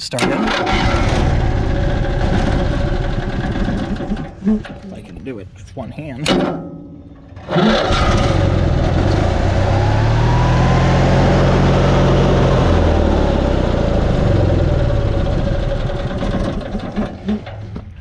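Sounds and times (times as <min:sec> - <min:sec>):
generator engine running: 0:00.0 - 0:04.4, 0:07.4 - 0:17.4.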